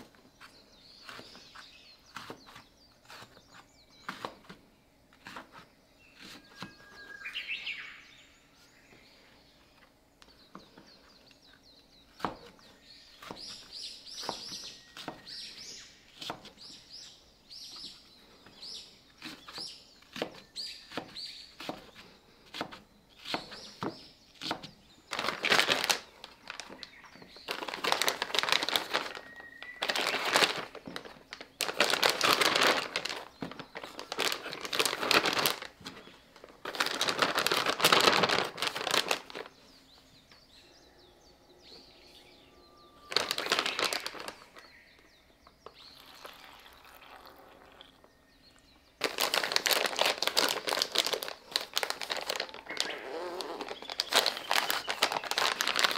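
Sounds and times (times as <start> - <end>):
plastic bag rustling and crinkling: 25.1 - 39.6, 43.0 - 44.8, 49.0 - 55.9.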